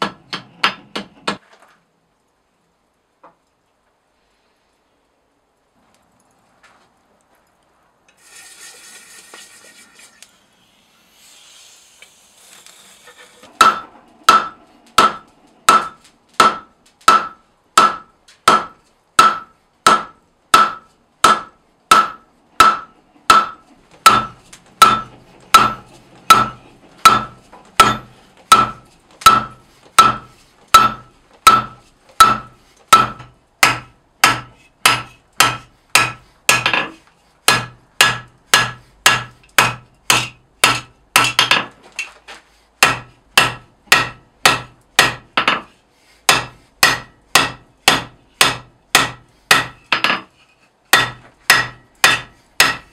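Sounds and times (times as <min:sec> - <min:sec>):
hammer striking metal on anvil: 0:13.6 - 0:36.9, 0:37.5 - 0:41.7, 0:42.8 - 0:45.7, 0:46.3 - 0:50.2, 0:50.9 - 0:52.9.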